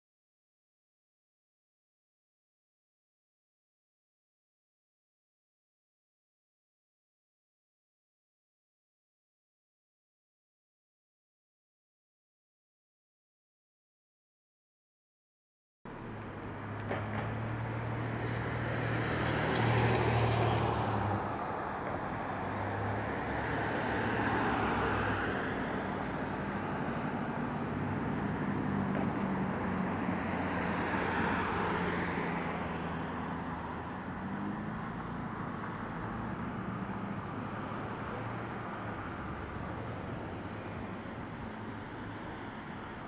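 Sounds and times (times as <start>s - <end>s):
cars driving past: 15.9s - 43.0s
traffic hum: 15.9s - 43.0s.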